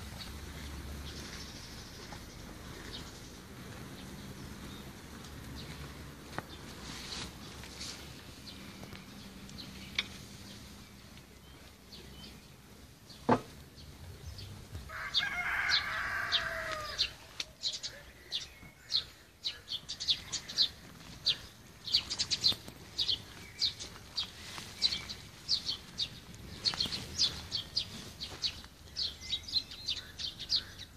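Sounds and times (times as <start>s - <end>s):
small birds chirping: 0.0s - 30.9s
rooster crowing: 14.9s - 17.3s.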